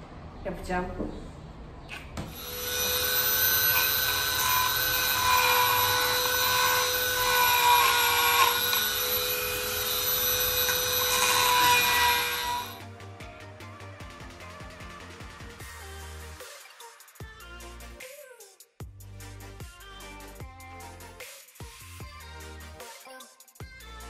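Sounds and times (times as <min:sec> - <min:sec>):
rotary tool whining and grinding: 0:02.3 - 0:12.8.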